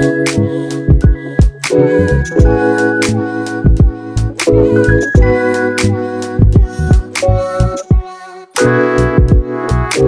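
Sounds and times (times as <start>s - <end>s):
held keyboard chords: 0.0s - 10.0s
deep bass kicks: 6.4s - 7.1s, 9.2s - 9.5s.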